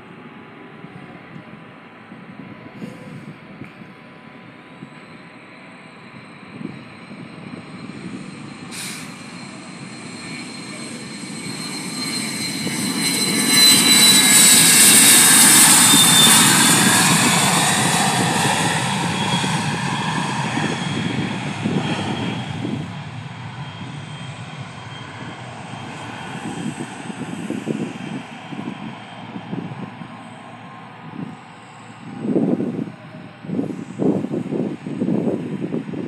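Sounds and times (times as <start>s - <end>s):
jet engine with turbine whine: 0.0s - 36.0s.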